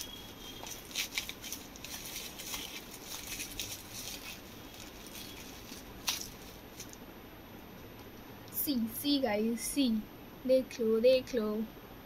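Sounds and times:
plastic packaging crinkling: 0:00.0 - 0:07.0.

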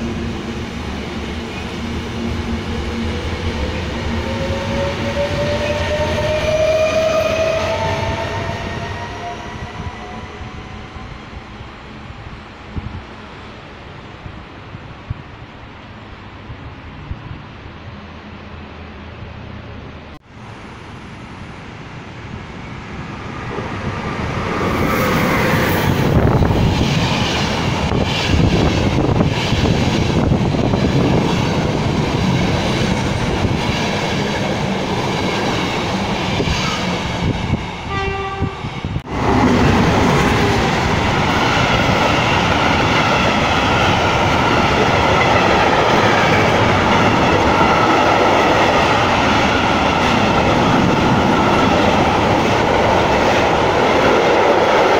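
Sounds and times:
passenger train passing: 0:00.0 - 0:54.9
train horn: 0:37.8 - 0:38.8.

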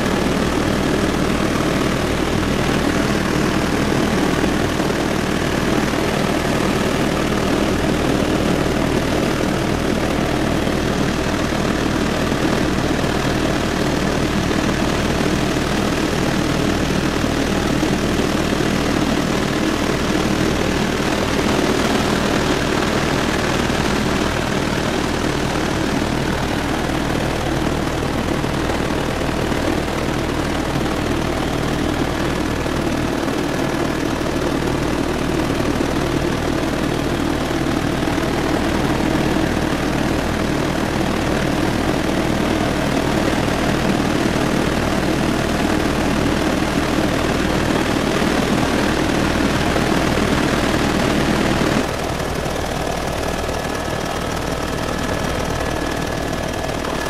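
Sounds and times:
helicopter engine and rotor drone: 0:00.0 - 0:57.0.

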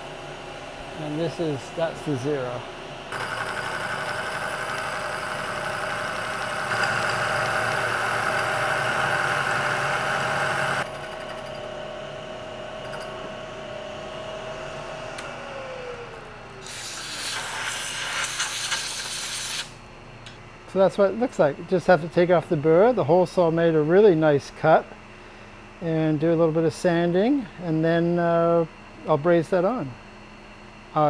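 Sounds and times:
milling machine motor whine: 0:00.0 - 0:17.4
hole saw cutting steel: 0:03.1 - 0:10.9, 0:16.6 - 0:19.6
spindle winding down: 0:03.1 - 0:11.6.

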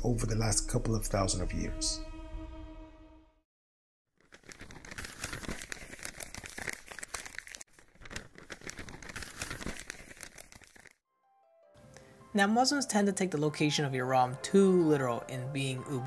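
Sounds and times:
paper crinkling and rustling: 0:04.2 - 0:11.0.

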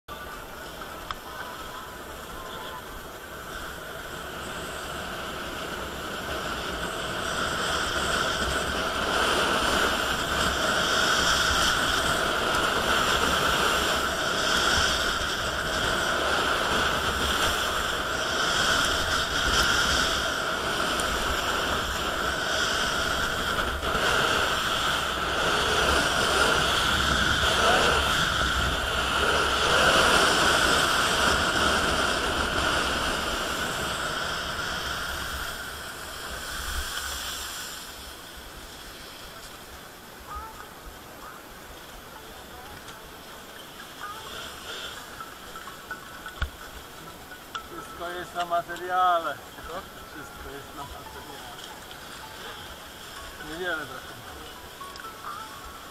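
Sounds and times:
skis sliding over packed snow: 0:00.1 - 0:45.3, 0:47.8 - 0:55.4
rushing wind: 0:00.4 - 0:42.2.

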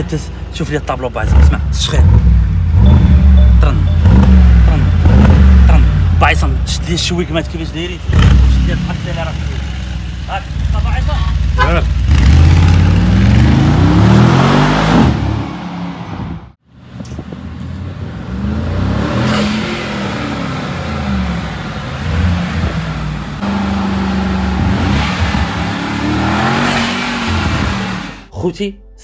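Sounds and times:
car engine accelerating hard: 0:11.7 - 0:16.5, 0:18.0 - 0:28.3.

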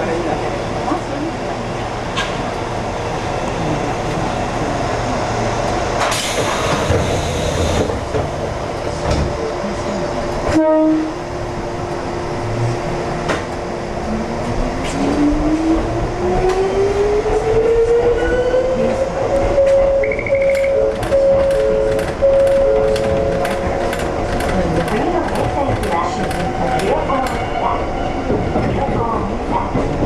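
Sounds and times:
train horn toot: 0:10.5 - 0:11.2
level-crossing bell ringing: 0:19.6 - 0:23.6.

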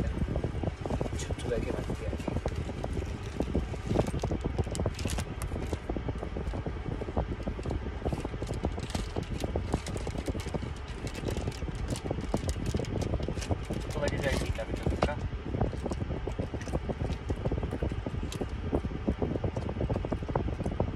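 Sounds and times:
air vent wind noise: 0:00.0 - 0:20.9
plastic bag crackling: 0:01.8 - 0:05.9, 0:07.6 - 0:15.1.

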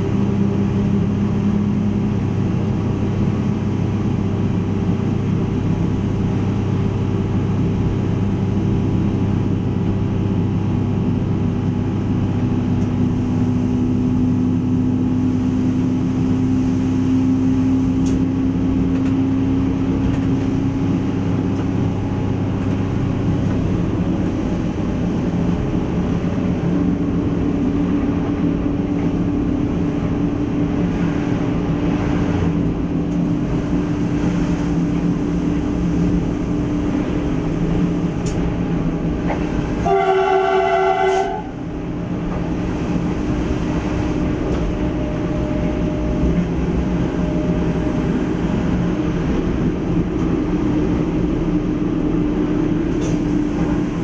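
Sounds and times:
train engine drone: 0:00.0 - 0:54.0
train horn blast: 0:39.8 - 0:41.6.

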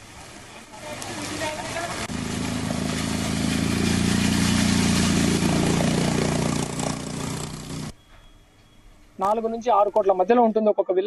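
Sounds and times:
water rushing and splashing: 0:00.0 - 0:07.9
motorcycle engine running: 0:01.4 - 0:08.0.

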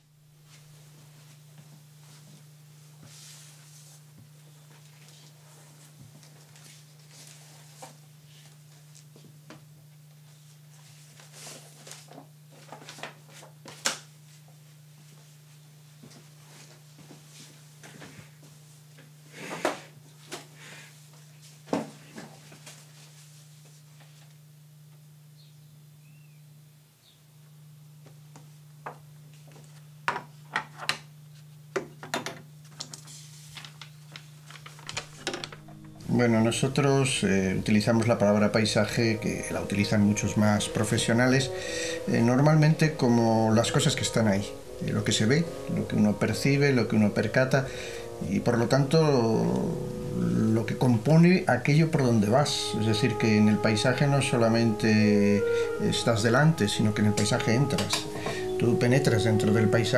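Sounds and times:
steady low hum: 0:00.0 - 0:30.5, 0:32.5 - 0:59.9
paper rustling: 0:11.0 - 0:14.0, 0:32.6 - 0:35.9
low hum: 0:35.4 - 0:59.9.

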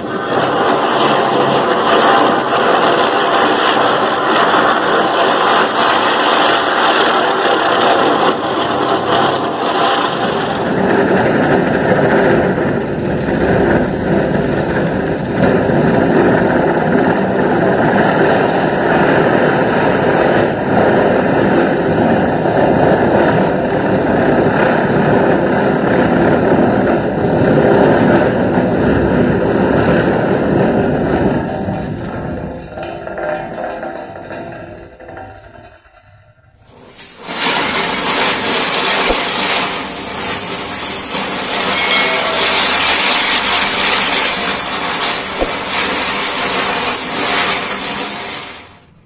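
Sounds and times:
firecracker hissing rush: 0:00.0 - 0:17.1, 0:36.6 - 0:49.0.

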